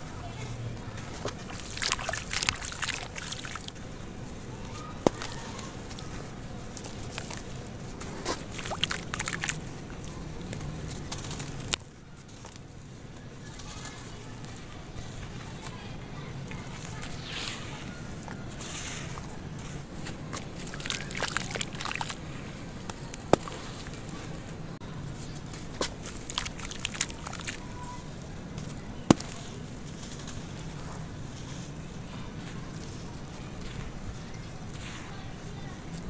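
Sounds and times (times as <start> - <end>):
dry clay crumbling: 0.8 - 15.7, 16.6 - 24.5, 25.2 - 36.0
wet clay squelching in water: 1.0 - 3.8, 5.0 - 11.8, 18.6 - 22.2, 25.8 - 27.7.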